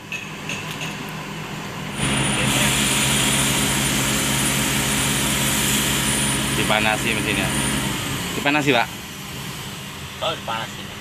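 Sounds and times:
diesel engine running: 1.4 - 11.0
thin high whine: 1.9 - 8.8.

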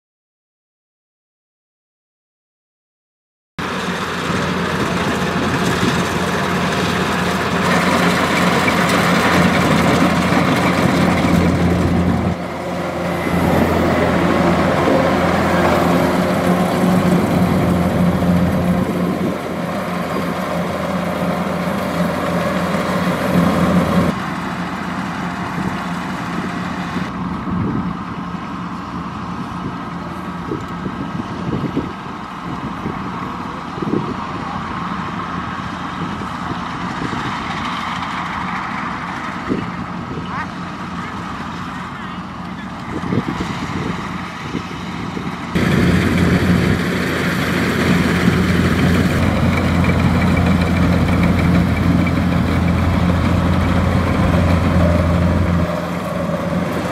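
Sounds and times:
threshing machinery rushing: 3.6 - 27.1, 45.5 - 56.9
diesel engine drone: 3.6 - 56.9.

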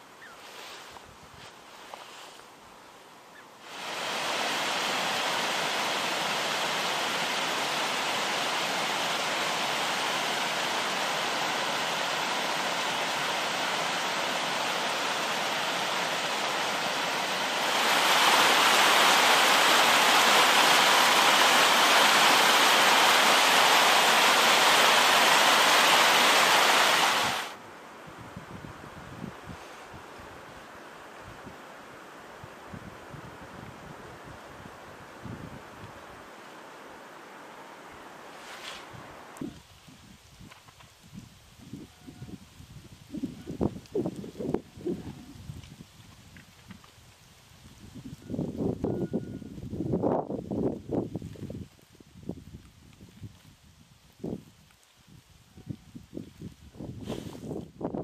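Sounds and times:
water rushing: 3.6 - 27.7, 34.4 - 39.5.

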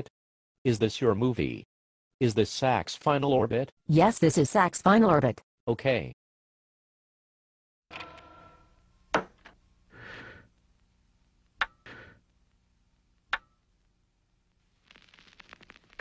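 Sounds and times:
record player whirring: 10.5 - 16.0
stylus crackle on vinyl: 12.3 - 16.0.

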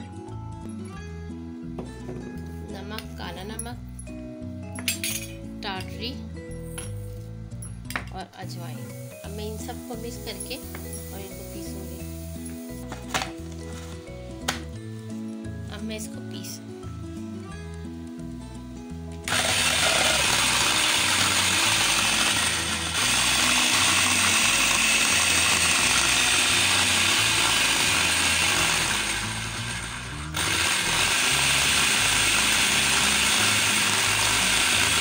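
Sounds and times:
food processor grinding: 19.2 - 35.0.

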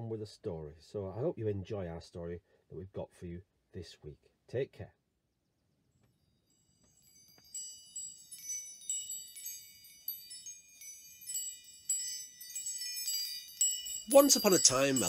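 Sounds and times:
metal chimes ringing: 6.3 - 15.0.

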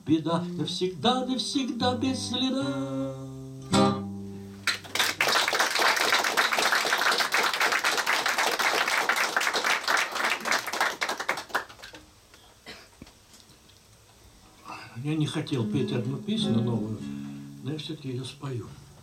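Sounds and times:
audience applauding: 4.6 - 12.1.

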